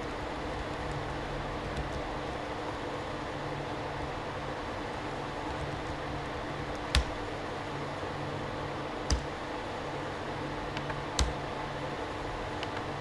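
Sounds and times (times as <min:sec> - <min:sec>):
steady low hum: 0:00.0 - 0:13.0
keyboard keystrokes: 0:06.8 - 0:07.2, 0:09.1 - 0:09.4, 0:10.7 - 0:11.4.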